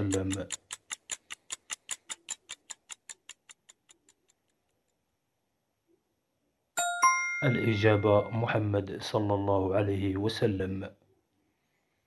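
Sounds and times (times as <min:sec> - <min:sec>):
clock ticking: 0:00.0 - 0:04.7
bright chime: 0:06.8 - 0:08.8.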